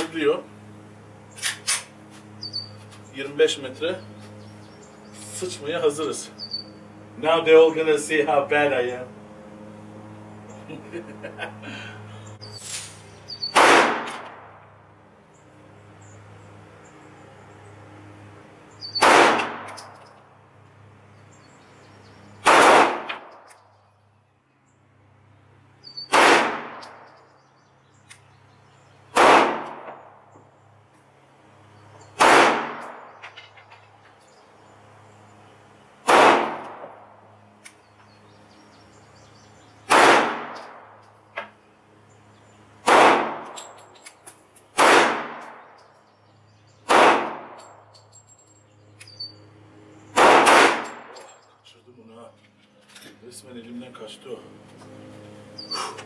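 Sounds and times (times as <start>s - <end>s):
pistol shots with ringing tail: 13.4s - 14.6s, 18.9s - 20.0s, 22.4s - 23.6s, 26.0s - 27.1s, 29.1s - 30.2s, 32.2s - 33.2s, 36.0s - 37.1s, 39.9s - 41.0s, 42.8s - 43.6s, 44.8s - 45.6s, 46.8s - 47.8s, 50.1s - 51.3s.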